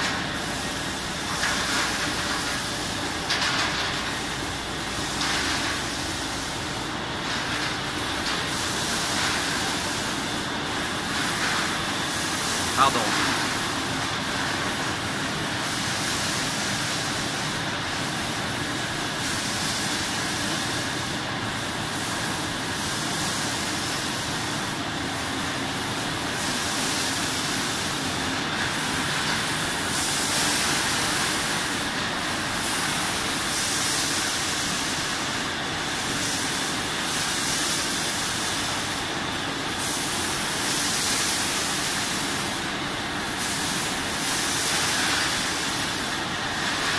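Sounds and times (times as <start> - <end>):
machine running: 0.0 - 23.6
compressed air hissing: 21.8 - 46.9.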